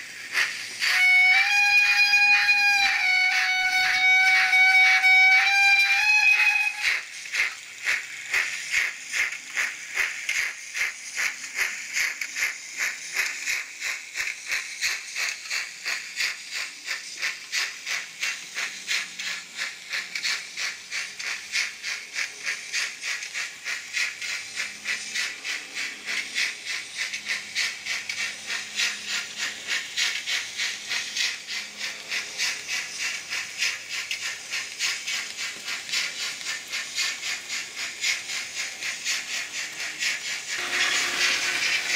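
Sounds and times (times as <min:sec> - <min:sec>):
model train rhythmic hissing rattle: 0:00.0 - 0:41.9.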